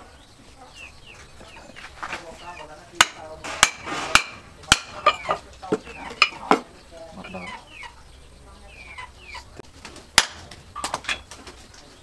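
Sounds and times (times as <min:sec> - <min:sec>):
chickens clucking: 0:00.0 - 0:12.0
hammer blows: 0:03.0 - 0:05.4.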